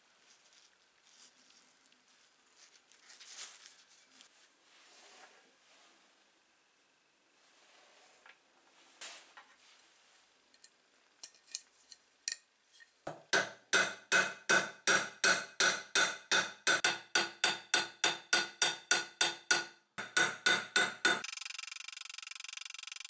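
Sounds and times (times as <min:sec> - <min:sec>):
hammer striking rivets on steel: 0:13.3 - 0:21.2
steady high-pitched sound: 0:21.2 - 0:23.0.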